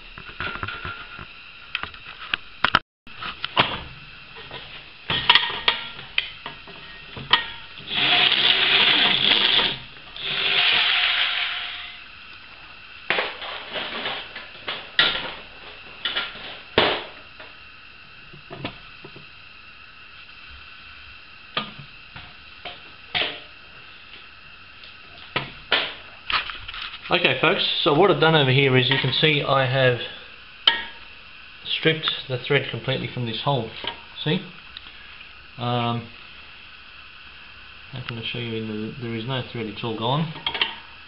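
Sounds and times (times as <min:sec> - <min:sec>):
electric drill running: 0:07.8 - 0:12.0.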